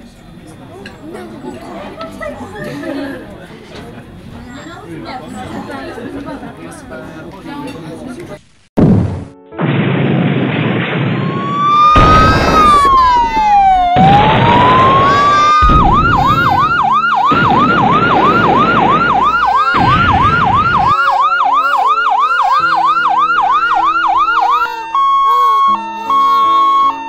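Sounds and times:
bursts of rushing noise: 0:08.8 - 0:21.2
siren wailing and yelping: 0:11.2 - 0:27.0
steady held siren tones: 0:11.2 - 0:27.0.

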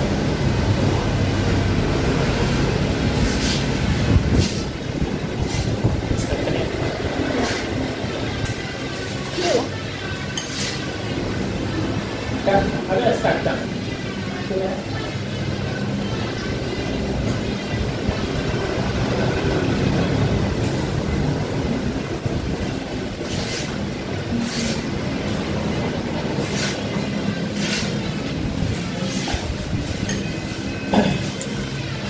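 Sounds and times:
street traffic rumble: 0:00.0 - 0:32.0
cutlery clinking on plates: 0:10.3 - 0:10.8.

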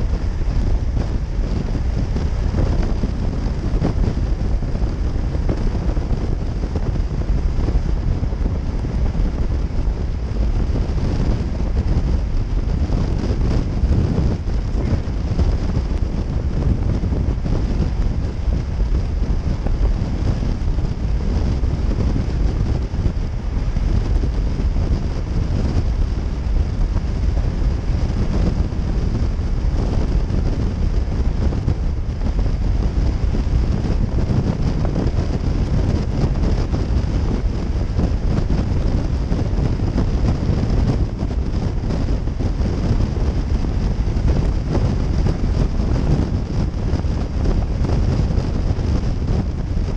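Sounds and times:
motorcycle engine and tyre drone: 0:00.0 - 0:49.9
wind rushing over microphone: 0:00.0 - 0:49.9.

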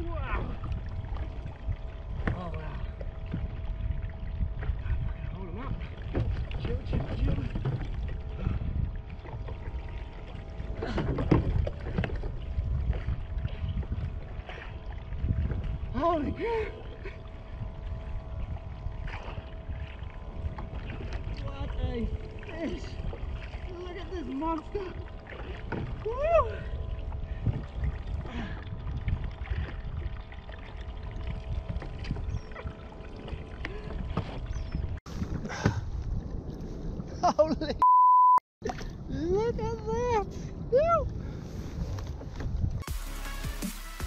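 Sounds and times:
water lapping against a hull: 0:00.0 - 0:37.8, 0:38.6 - 0:42.9
wind rumble on microphone: 0:00.0 - 0:37.8, 0:38.6 - 0:42.9
water slapping against kayak hull: 0:04.6 - 0:15.8, 0:19.0 - 0:26.1.

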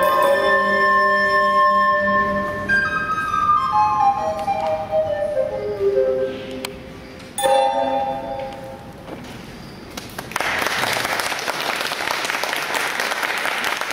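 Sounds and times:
recorder ensemble playing: 0:00.0 - 0:06.6, 0:07.4 - 0:08.9
audience applauding: 0:10.0 - 0:13.9.

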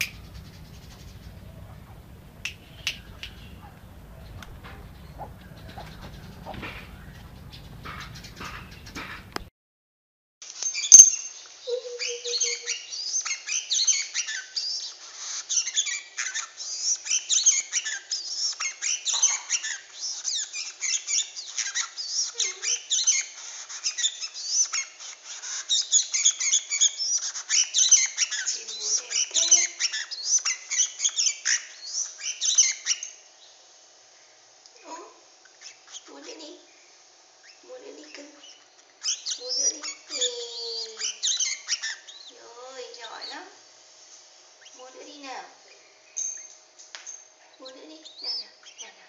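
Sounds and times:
bird singing rapid chirps: 0:00.0 - 0:09.5.

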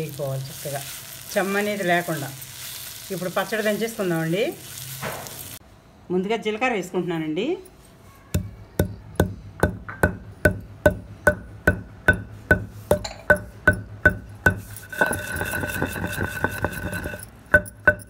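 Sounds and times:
pestle pounding in a mortar: 0:08.4 - 0:18.0.

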